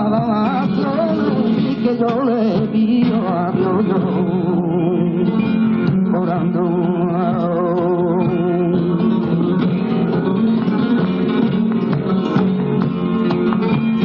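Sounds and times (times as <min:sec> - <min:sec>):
man singing melismatic line: 0:00.0 - 0:10.5
flamenco guitar: 0:00.0 - 0:14.0.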